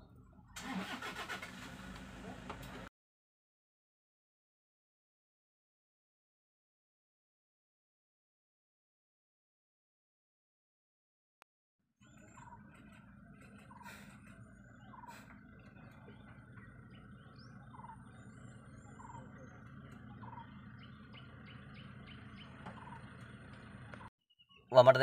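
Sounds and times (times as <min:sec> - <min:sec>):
birds chirping: 0:12.0 - 0:25.0.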